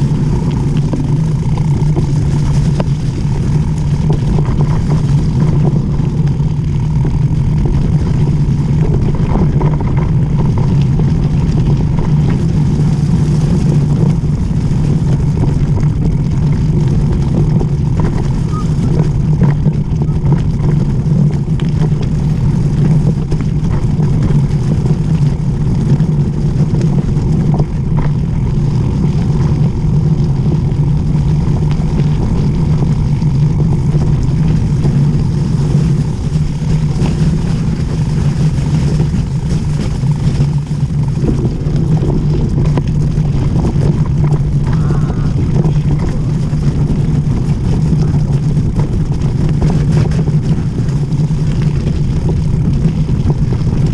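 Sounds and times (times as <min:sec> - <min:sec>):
bike tyres rolling on dirt road: 0:00.0 - 0:53.9
wind rushing over microphone: 0:00.0 - 0:53.9.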